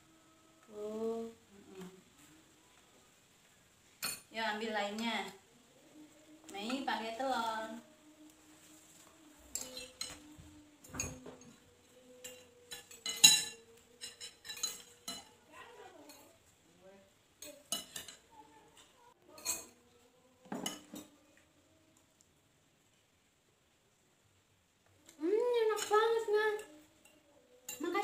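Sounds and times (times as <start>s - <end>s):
metal spoons clinking on ceramic plates: 4.0s - 4.3s, 9.5s - 15.4s, 17.4s - 21.4s, 25.7s - 28.0s.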